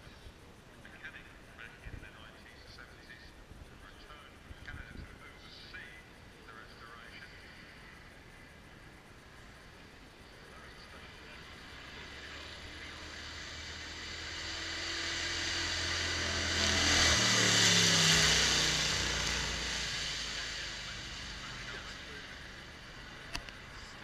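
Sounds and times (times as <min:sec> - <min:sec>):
racing car engine passing: 0:07.3 - 0:24.0.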